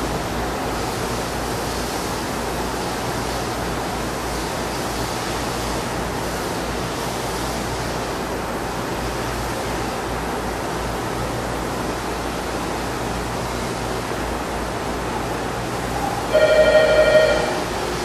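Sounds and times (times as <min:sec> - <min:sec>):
machine hiss with low hum: 0:00.0 - 0:18.0
loud tone with overtones: 0:16.2 - 0:17.8.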